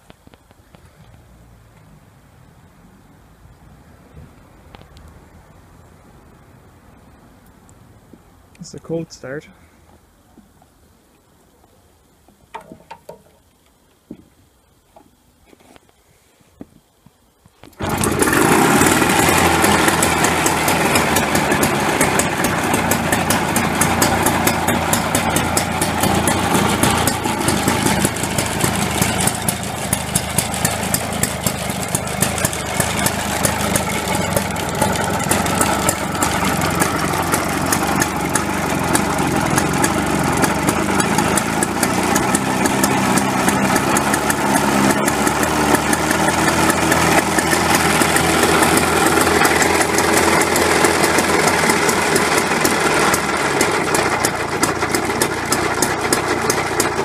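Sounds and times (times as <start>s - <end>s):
two-stroke engine running: 17.8s - 57.0s.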